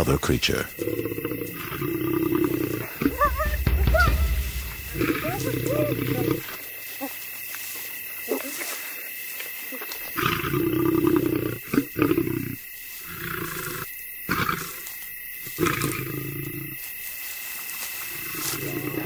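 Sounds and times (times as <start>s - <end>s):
lioness growling and snarling: 0.8s - 3.6s, 10.2s - 14.8s, 15.5s - 16.8s, 18.2s - 19.0s
sharp loud sounds: 3.0s - 6.4s.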